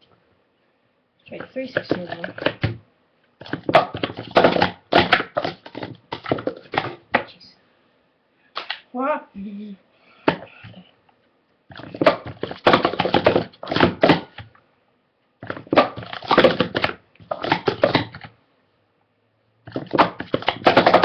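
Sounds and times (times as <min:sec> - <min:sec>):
plastic cups clattering and clicking: 0:01.4 - 0:02.8, 0:03.4 - 0:07.2, 0:11.7 - 0:14.4, 0:15.4 - 0:18.3, 0:19.7 - 0:21.0.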